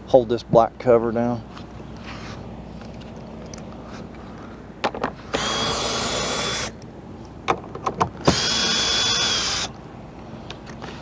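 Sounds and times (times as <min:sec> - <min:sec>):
cordless drill motor whine: 0:05.3 - 0:06.8, 0:08.2 - 0:09.8.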